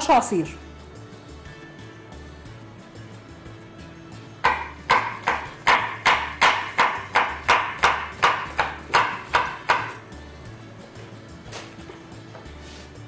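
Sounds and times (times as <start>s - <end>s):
faint background music: 0.0s - 13.0s
knife chopping on cutting board: 4.4s - 10.0s.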